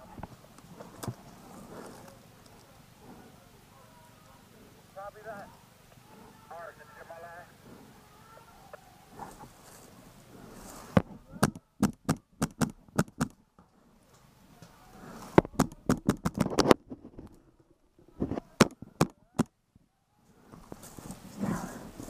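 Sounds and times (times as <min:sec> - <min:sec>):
paintball marker shots: 0:11.4 - 0:13.4, 0:15.4 - 0:16.5.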